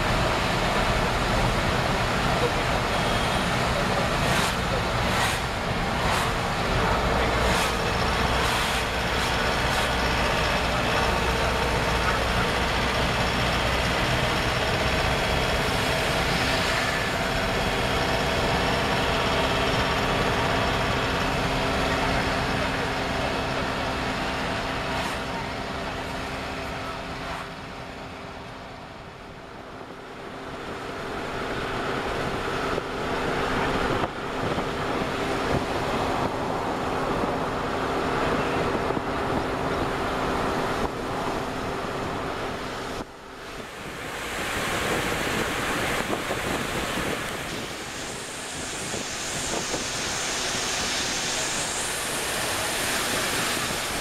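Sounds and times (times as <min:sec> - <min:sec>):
tyre noise on wet road: 0:00.0 - 0:54.0
vehicle engine hum: 0:00.0 - 0:54.0
wind rushing hiss: 0:43.5 - 0:54.0.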